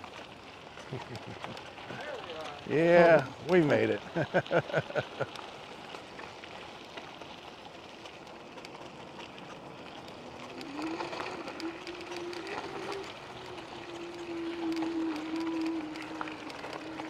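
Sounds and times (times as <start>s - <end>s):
bike rolling on dirt road: 0.0s - 17.0s
rising whine: 10.4s - 17.0s.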